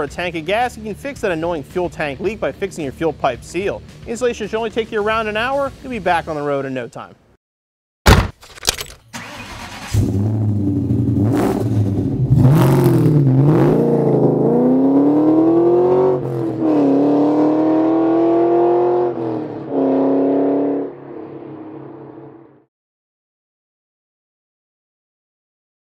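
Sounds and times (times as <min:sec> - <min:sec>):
car engine accelerating: 0:09.2 - 0:22.7.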